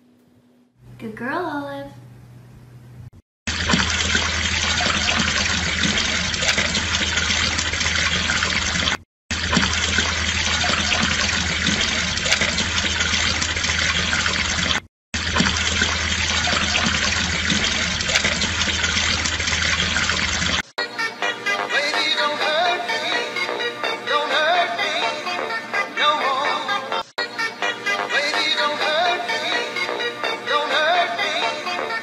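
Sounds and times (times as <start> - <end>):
fountain water splashing: 3.5 - 20.6.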